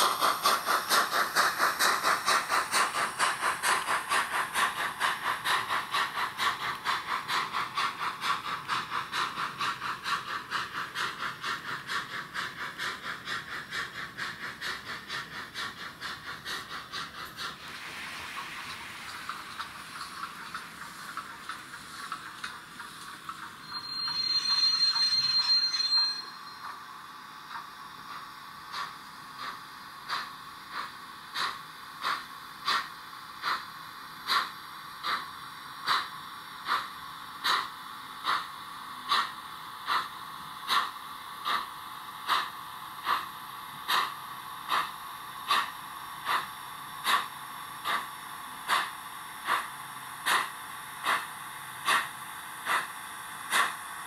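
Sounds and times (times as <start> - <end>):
steam exhaust chuffs: 0.0 - 54.0
model train steam whistle: 23.6 - 26.4.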